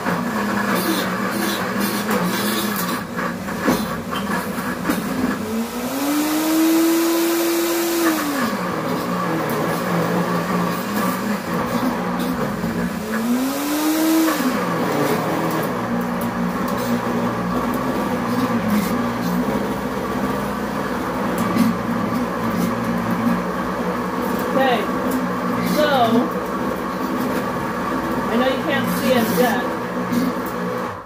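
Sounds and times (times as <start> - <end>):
blender motor grinding: 0.0 - 31.0.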